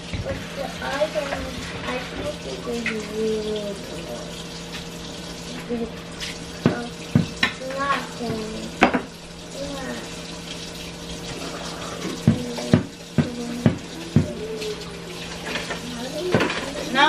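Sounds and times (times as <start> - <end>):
tap running into sink: 0.0 - 4.1, 4.7 - 10.0, 11.2 - 17.0
dishes clattering against sink: 5.6 - 9.2, 11.2 - 17.0.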